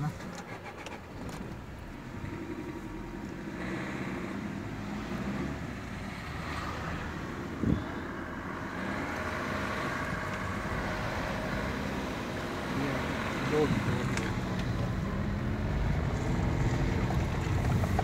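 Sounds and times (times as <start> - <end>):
car engine and road noise: 0.0 - 18.0
wind on microphone: 7.5 - 8.0.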